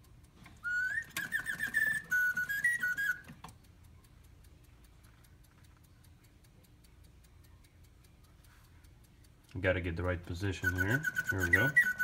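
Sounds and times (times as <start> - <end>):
clock mechanism ticking: 0.0 - 12.0
whistled bird note: 10.6 - 12.0.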